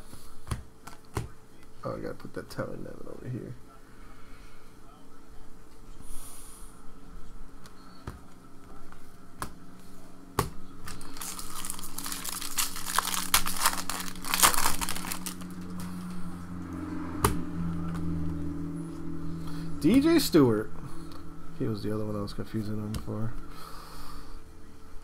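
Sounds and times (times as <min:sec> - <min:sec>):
foil wrapper tearing and crinkling: 0:10.9 - 0:16.0.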